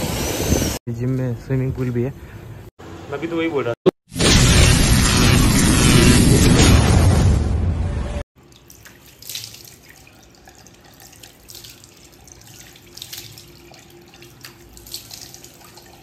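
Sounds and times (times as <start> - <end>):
water running: 8.4 - 16.0
water splashing on face: 8.5 - 16.0.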